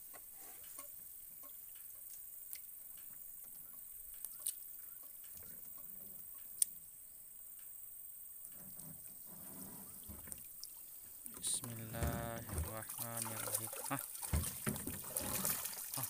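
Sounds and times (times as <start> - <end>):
water sloshing: 8.9 - 16.0.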